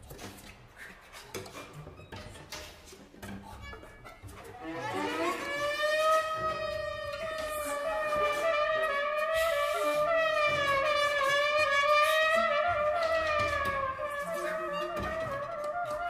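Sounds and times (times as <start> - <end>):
long held wavering note: 4.5 - 16.0.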